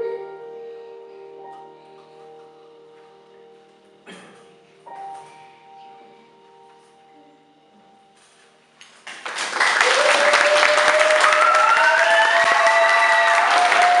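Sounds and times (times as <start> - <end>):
piano chord ringing: 0.0 - 8.9
audience applause: 9.0 - 14.0.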